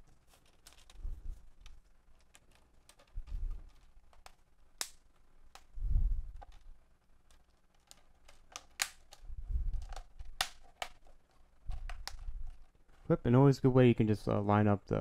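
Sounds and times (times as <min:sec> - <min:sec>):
plastic clips snapping: 0:01.6 - 0:05.7, 0:07.3 - 0:11.1.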